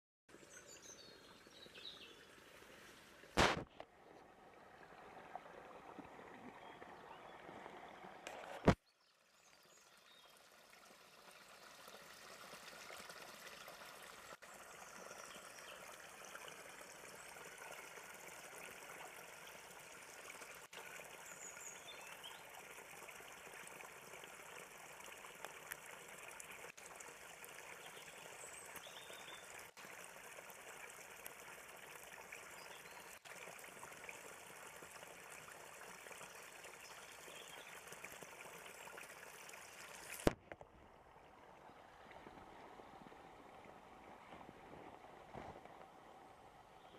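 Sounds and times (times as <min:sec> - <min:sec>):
water splashing into stream: 0:02.5 - 0:46.2
sharp click: 0:03.4 - 0:03.8.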